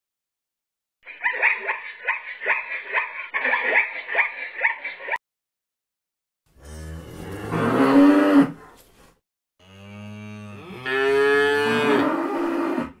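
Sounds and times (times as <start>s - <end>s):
calves mooing: 9.6s - 13.0s.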